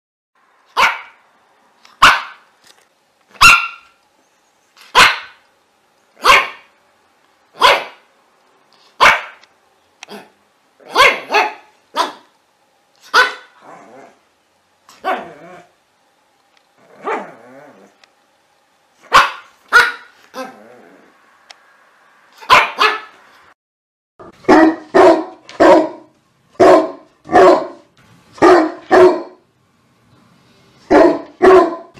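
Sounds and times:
dog barking: 0:00.7 - 0:01.2, 0:02.0 - 0:02.4, 0:03.4 - 0:04.0, 0:04.9 - 0:05.4, 0:06.2 - 0:06.7, 0:07.6 - 0:08.1, 0:09.0 - 0:09.4, 0:10.1 - 0:12.3, 0:13.0 - 0:13.6, 0:15.0 - 0:15.4, 0:17.0 - 0:17.4, 0:19.0 - 0:20.6, 0:22.4 - 0:23.2, 0:24.2 - 0:29.4, 0:30.9 - 0:31.9.

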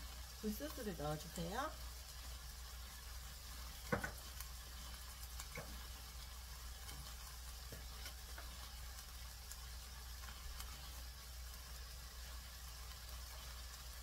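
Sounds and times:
vegetables sizzling in pan: 0:00.0 - 0:14.0.

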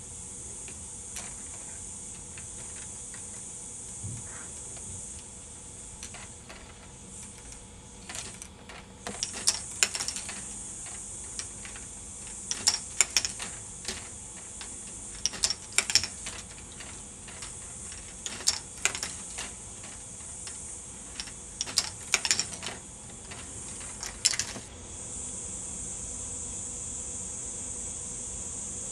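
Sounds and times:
steady high hiss: 0:00.0 - 0:28.9
plastic balls clacking: 0:06.0 - 0:24.7.

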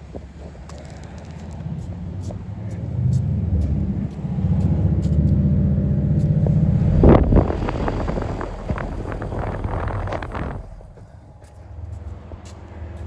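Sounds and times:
rush of air on microphone: 0:06.2 - 0:11.4.

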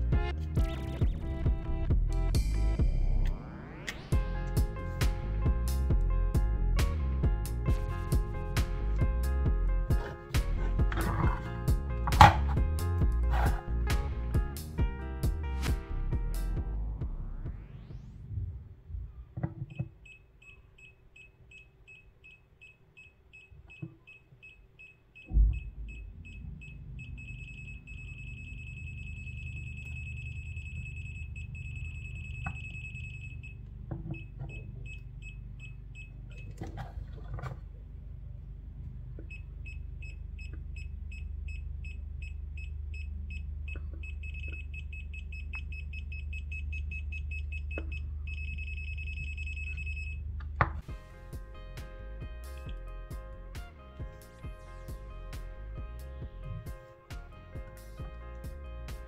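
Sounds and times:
low steady hum: 0:00.0 - 0:59.0
voltage tester beeping: 0:19.7 - 0:36.5, 0:39.2 - 0:50.2
thump: 0:25.3 - 0:26.6.

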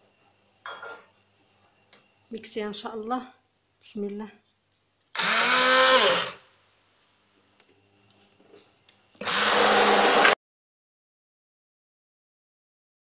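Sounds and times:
immersion blender pureeing: 0:05.1 - 0:06.4, 0:09.2 - 0:10.4.

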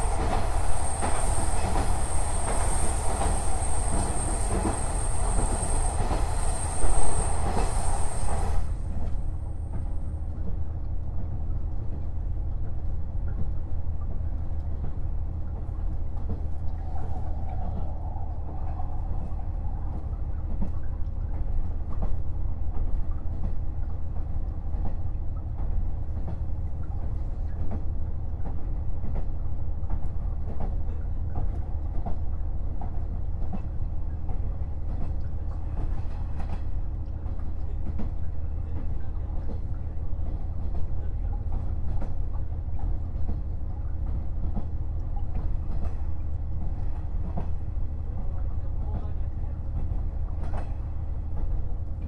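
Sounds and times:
wheel-on-rail noise: 0:00.0 - 0:09.2.

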